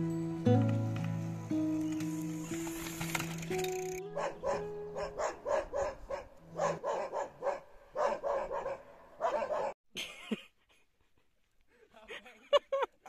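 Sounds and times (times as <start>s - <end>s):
dogs barking rapidly: 4.2s - 9.8s.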